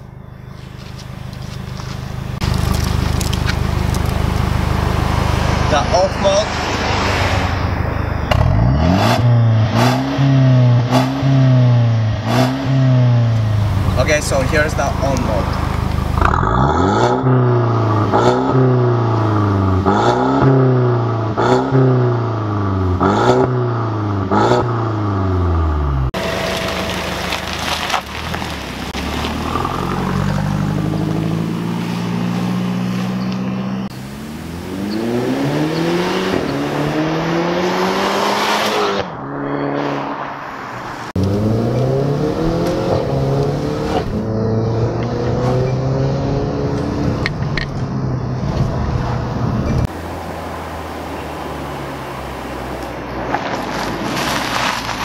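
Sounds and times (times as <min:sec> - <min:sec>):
car engine revving: 0:00.4 - 0:55.0
car accelerating through gears: 0:08.3 - 0:49.9.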